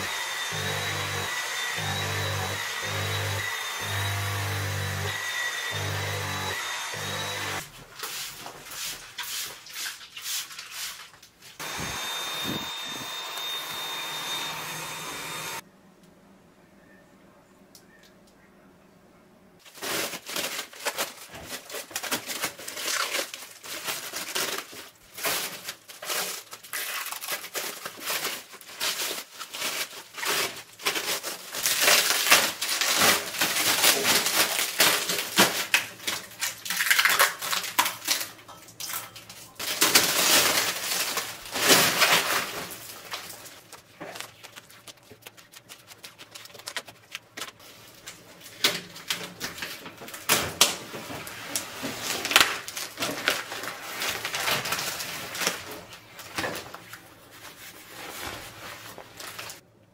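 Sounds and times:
plastic film crinkling and tearing: 0:19.6 - 0:59.6.

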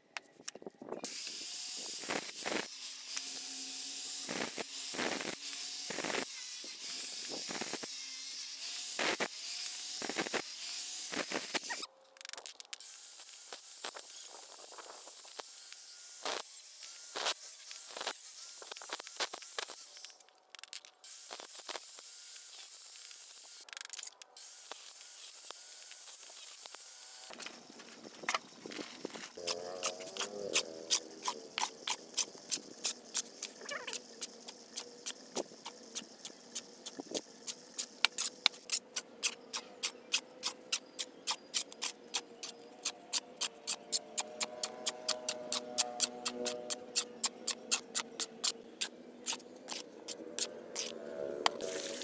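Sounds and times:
angle grinder cutting brick: 0:01.0 - 0:52.0.

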